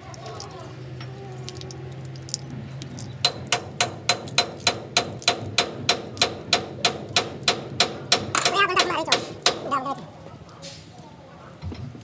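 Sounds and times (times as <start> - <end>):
hammer striking metal: 3.2 - 9.7.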